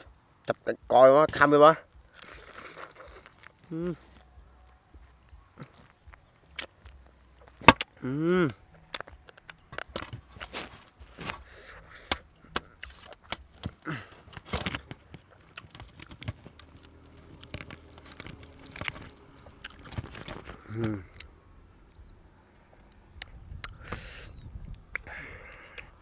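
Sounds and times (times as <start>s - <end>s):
crisp skin and meat tearing: 1.9s - 4.4s, 8.9s - 21.4s
wet chewing: 1.9s - 8.0s, 8.7s - 26.0s
person humming: 3.6s - 4.2s, 7.9s - 8.7s, 20.6s - 21.2s.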